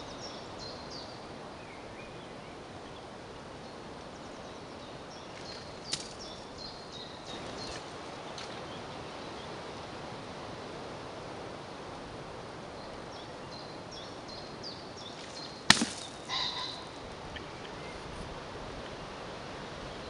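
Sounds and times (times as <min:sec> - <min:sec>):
dart striking target: 0:15.7 - 0:16.2.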